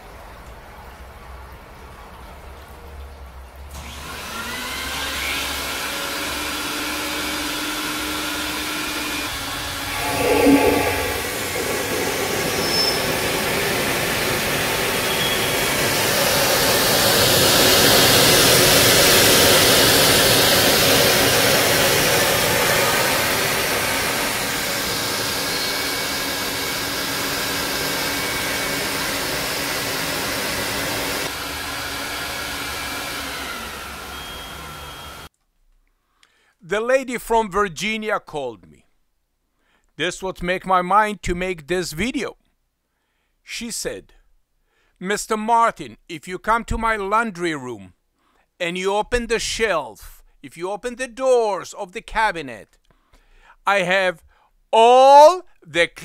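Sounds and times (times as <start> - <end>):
rug-cleaning machine motor rushing: 4.7 - 35.3.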